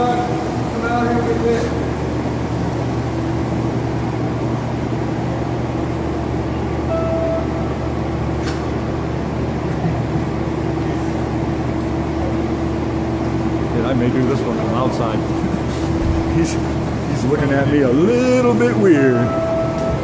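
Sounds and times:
rail car equipment humming: 0.0s - 20.0s
short tone: 6.8s - 8.0s, 19.2s - 20.0s.

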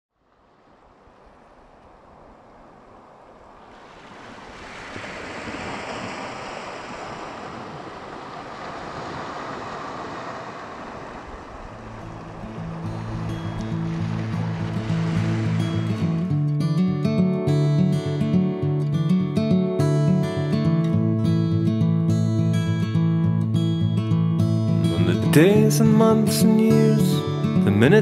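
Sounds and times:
sea waves on sandy beach: 0.2s - 18.4s
music: 12.0s - 28.0s.

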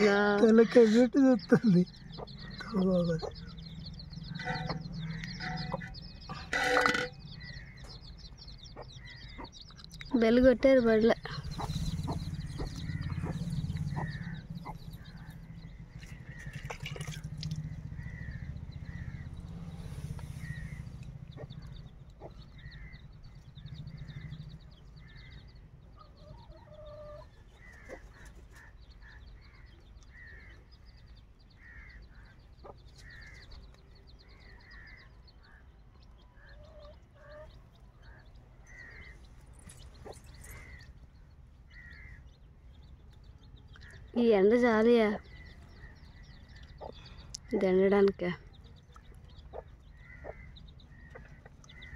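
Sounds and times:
birds calling: 0.0s - 51.9s
low rumble: 1.9s - 10.2s, 10.8s - 26.0s.

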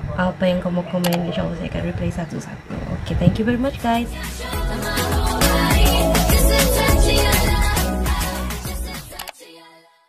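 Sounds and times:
intro music with heavy bass: 3.9s - 9.2s.

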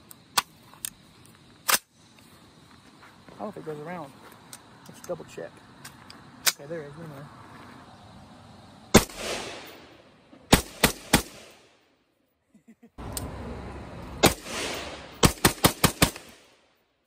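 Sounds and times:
rifle gunshots with echo: 8.9s - 11.6s, 14.2s - 16.6s.

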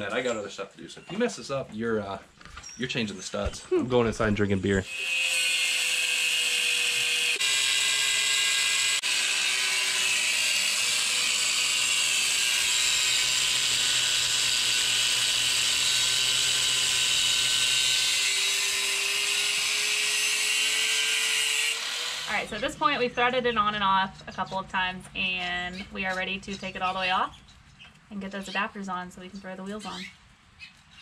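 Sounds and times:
angle grinder cutting steel: 4.8s - 23.0s.

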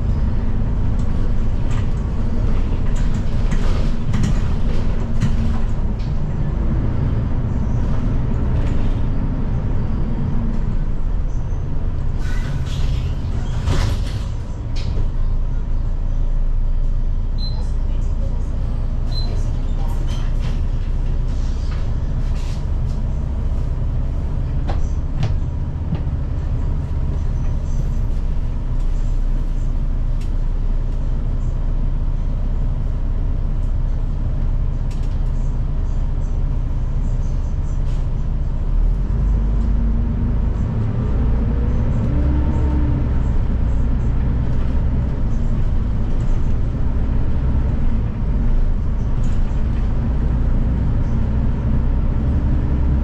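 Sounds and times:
bus engine and road rumble: 0.0s - 53.0s.

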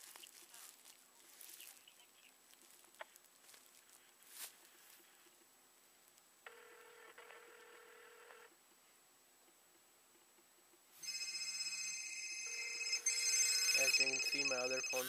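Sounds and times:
electronic phone ringtone: 6.5s - 8.5s, 11.0s - 15.0s
phone ringback tone: 6.5s - 8.5s, 11.0s - 15.0s.

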